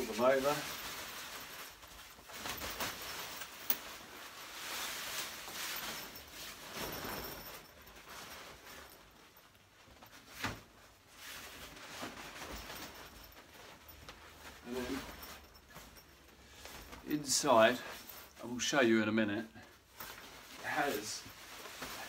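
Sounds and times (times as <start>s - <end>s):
fabric rustling and swishing: 0.0s - 18.7s, 19.3s - 22.0s.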